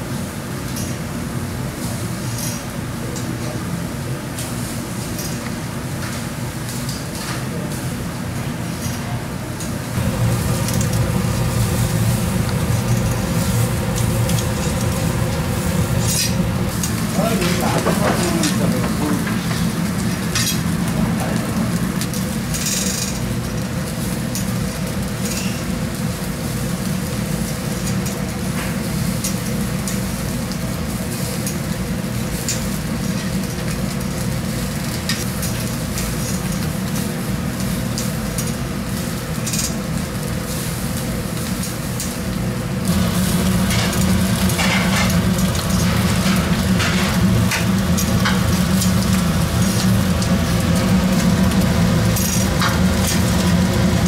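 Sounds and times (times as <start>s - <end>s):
low hum: 10.0s - 17.2s
fire crackling: 10.0s - 54.0s
fish sizzling on grill: 10.0s - 54.0s.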